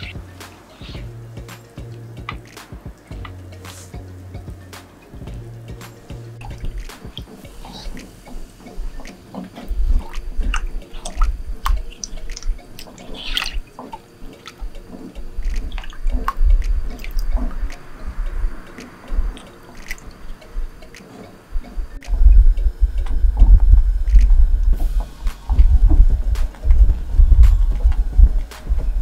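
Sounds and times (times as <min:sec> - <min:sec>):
liquid sloshing and dripping: 0:06.4 - 0:17.9, 0:18.6 - 0:21.2
low bumps: 0:21.8 - 0:29.0.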